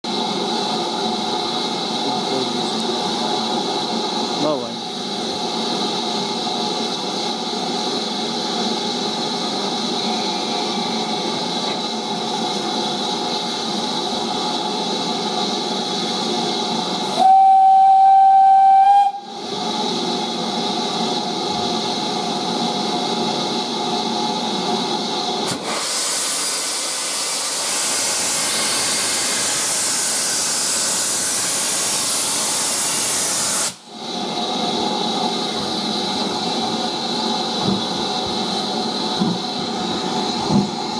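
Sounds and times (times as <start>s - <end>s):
steam hissing: 0.1s - 40.9s
steam whistle: 17.1s - 19.3s
loud sharp hiss of escaping steam: 23.2s - 40.9s.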